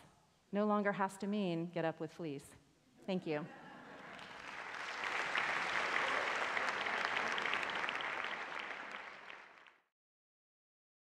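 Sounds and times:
audience applauding: 0:03.9 - 0:09.9.

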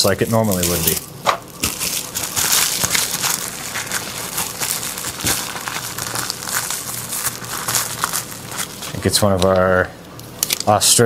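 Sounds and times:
cellophane bag crinkling: 0:00.0 - 0:09.8.

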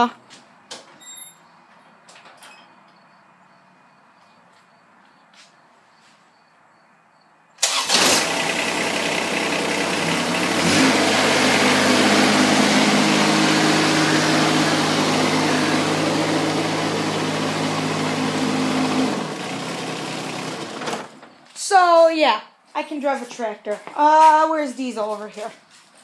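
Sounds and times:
tractor engine running: 0:07.6 - 0:21.4.

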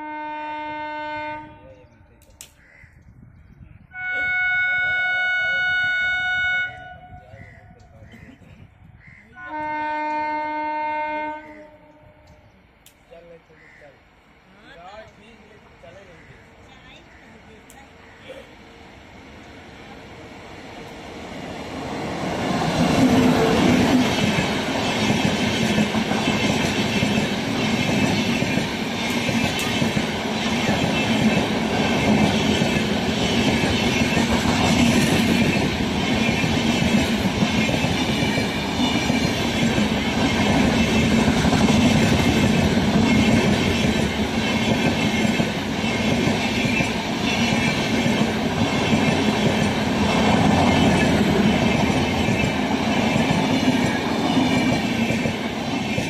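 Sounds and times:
train rumble: 0:18.8 - 0:56.0.

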